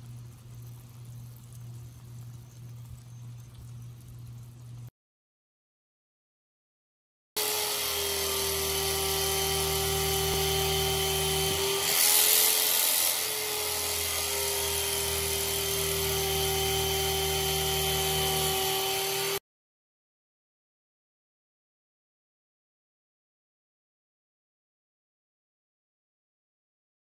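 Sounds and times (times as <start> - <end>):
electric motor whining: 7.4 - 19.4.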